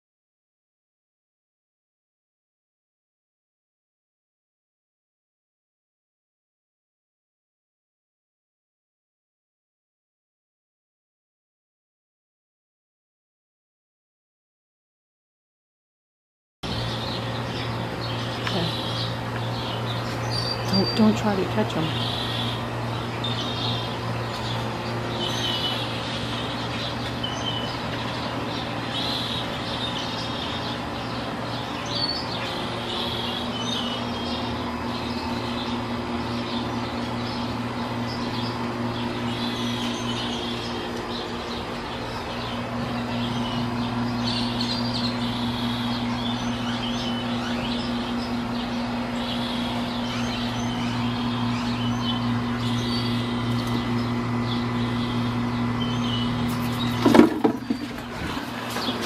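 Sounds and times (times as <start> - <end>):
low mechanical hum: 16.6 - 59.0
small birds chirping: 16.6 - 59.0.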